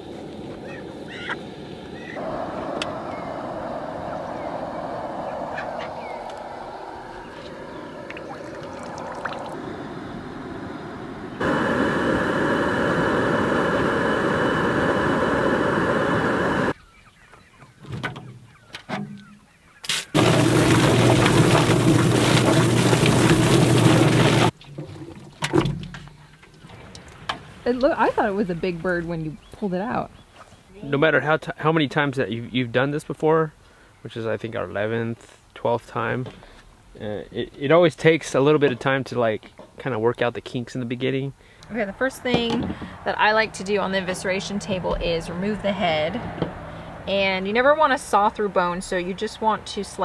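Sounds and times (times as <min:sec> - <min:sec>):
propane burner roar: 0:00.0 - 0:16.8, 0:20.2 - 0:24.6
chicken squawking: 0:00.6 - 0:01.4.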